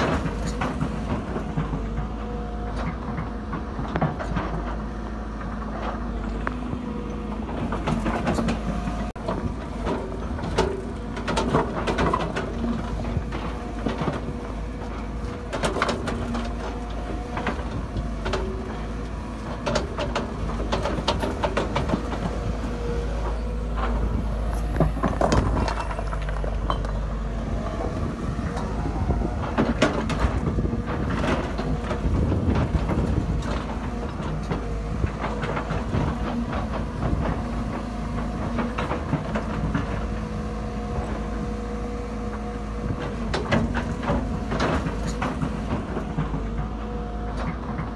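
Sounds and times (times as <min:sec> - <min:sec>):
diesel excavator engine: 0:00.0 - 0:47.9
rocks clattering in steel bucket: 0:25.0 - 0:27.0.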